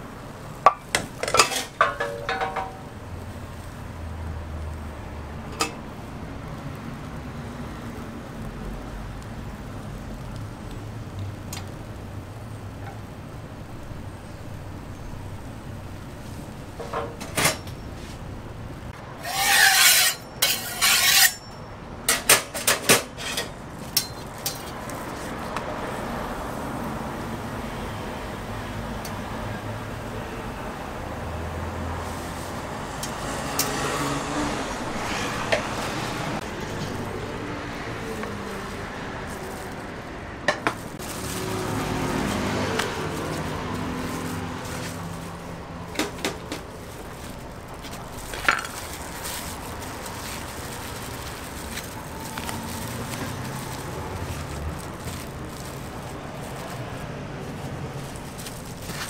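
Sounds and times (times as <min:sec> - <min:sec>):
utensils and dishes clinking: 0:00.7 - 0:02.9, 0:19.2 - 0:24.8.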